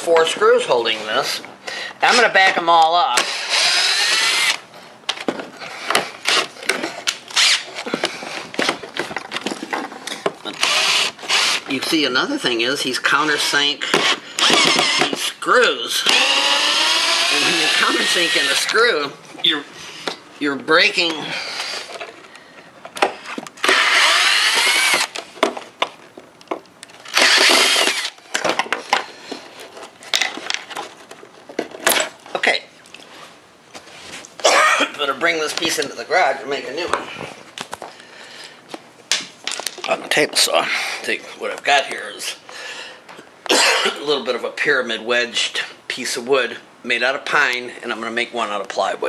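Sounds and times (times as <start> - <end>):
cordless drill whining: 3.2 - 4.6, 7.3 - 7.8, 10.5 - 11.7, 13.9 - 15.2, 16.0 - 18.8, 23.6 - 25.2, 27.1 - 28.2
clicks and knocks of parts handled: 5.0 - 10.6, 24.6 - 33.1, 38.7 - 40.0
cordless drill backing out screws: 10.6 - 11.6, 13.9 - 15.3, 23.6 - 25.2, 27.0 - 28.7.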